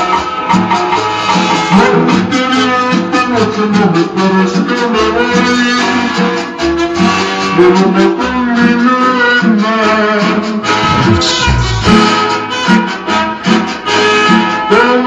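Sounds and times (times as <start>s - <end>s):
cumbia music from vinyl record: 10.8s - 12.0s.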